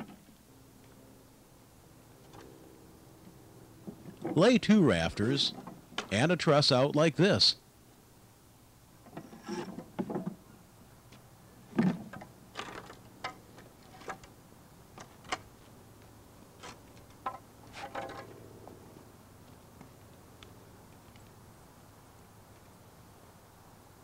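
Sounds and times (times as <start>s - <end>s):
board scraping on concrete: 17.7s - 18.4s.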